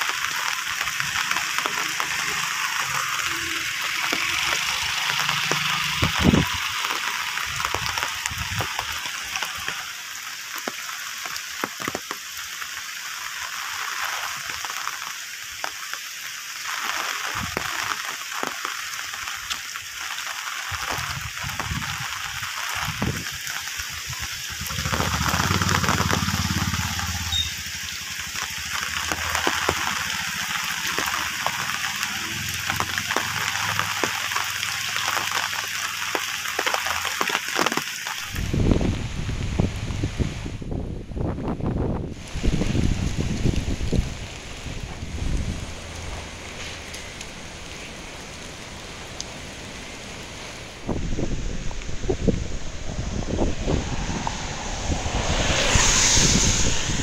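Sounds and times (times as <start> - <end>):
rain hissing: 0.0 - 57.0
low rumble: 50.8 - 57.0.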